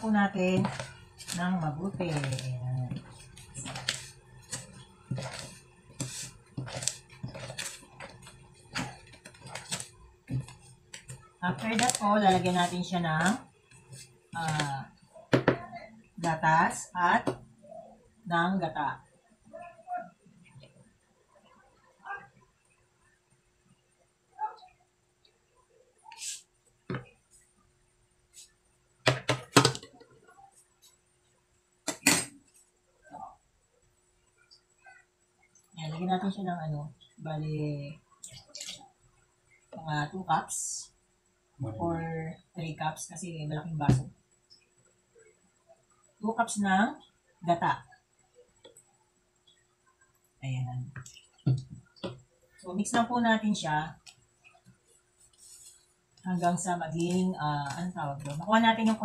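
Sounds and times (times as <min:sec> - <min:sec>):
gritty scrapes in plastic bowl: 0:00.0 - 0:12.8
kitchen containers knocking and clinking: 0:29.1 - 0:30.0.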